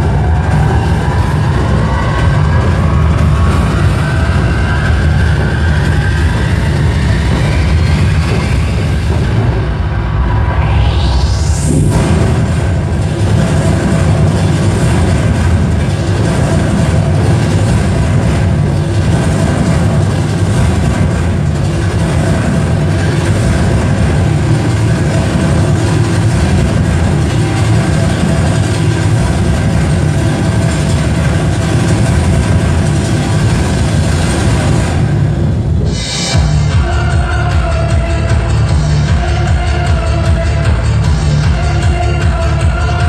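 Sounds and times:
festival drums beaten in fast roll: 0.0s - 10.4s, 11.3s - 43.0s.

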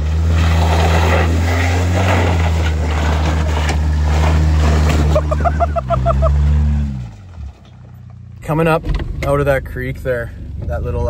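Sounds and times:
tyres scrabbling on rocks and water: 0.0s - 5.7s
car engine at high revs: 0.0s - 11.0s.

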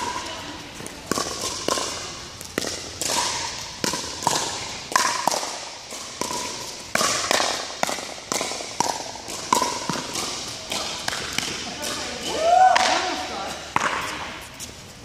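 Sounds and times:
paddles striking plastic ball: 0.8s - 12.0s.

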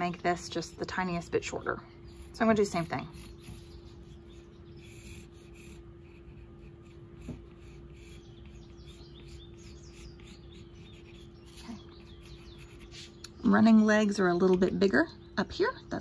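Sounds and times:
pencil scratching on cardboard: 0.0s - 1.5s, 2.1s - 13.2s
steady low hum: 0.0s - 16.0s.

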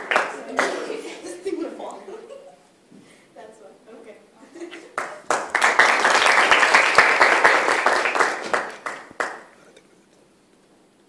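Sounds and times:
small audience clapping: 0.0s - 1.1s, 4.9s - 9.8s.

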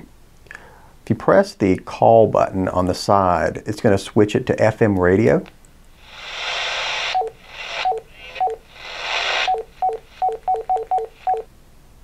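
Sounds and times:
radio static hiss: 5.4s - 11.5s.

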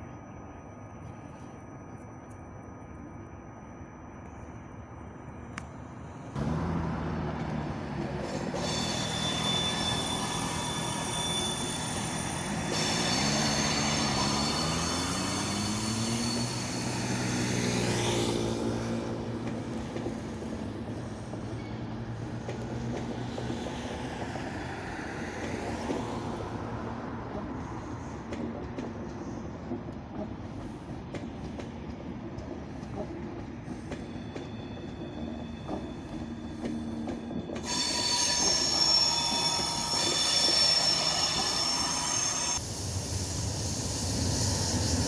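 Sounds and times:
train whine rising in pitch: 0.0s - 22.0s, 33.8s - 45.0s
train rolling noise: 0.0s - 45.0s
train squealing tones: 8.2s - 45.0s.

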